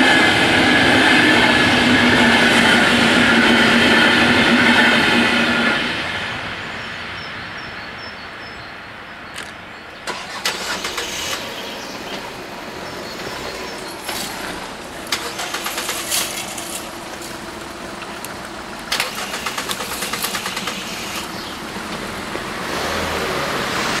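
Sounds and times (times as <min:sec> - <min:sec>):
cars driving over crossing: 0:09.3 - 0:24.0
rapid ticking: 0:13.2 - 0:22.5.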